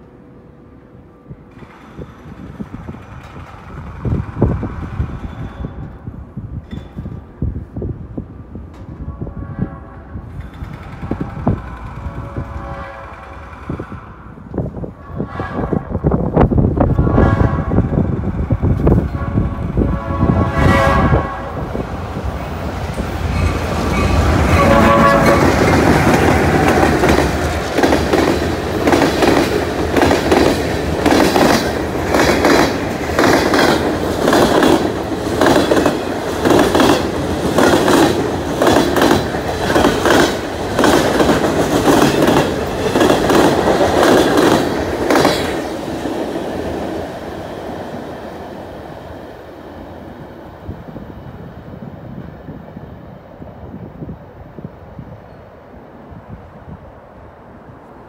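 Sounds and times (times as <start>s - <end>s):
train wheels clacking over rail joints: 1.5s - 6.0s, 10.3s - 14.1s, 22.7s - 47.1s
diesel locomotive horn: 8.9s - 10.4s, 11.0s - 14.4s, 15.0s - 16.2s, 16.9s - 18.1s, 18.9s - 21.8s, 23.4s - 26.9s.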